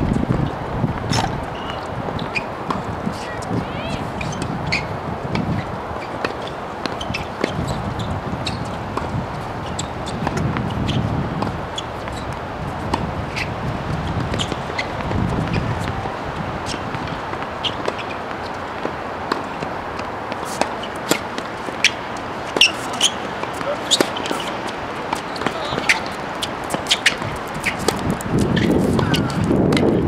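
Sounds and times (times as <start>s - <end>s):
outdoor background noise: 0.0s - 30.0s.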